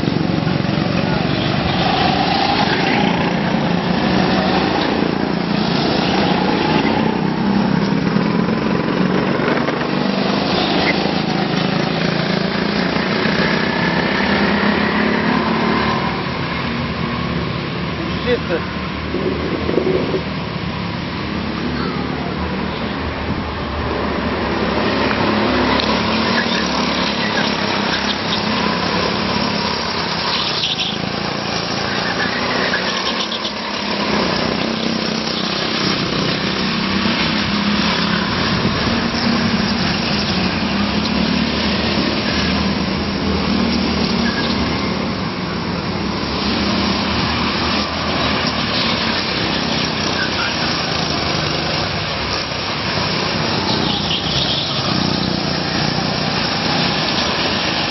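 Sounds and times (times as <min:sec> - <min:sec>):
go-kart engines droning: 0:00.0 - 0:57.9.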